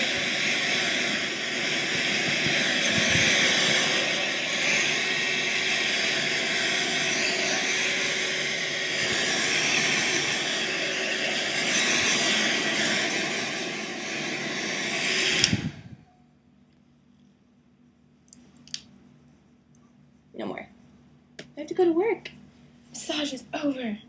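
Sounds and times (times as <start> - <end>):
hairdryer blowing air: 0.0 - 16.1.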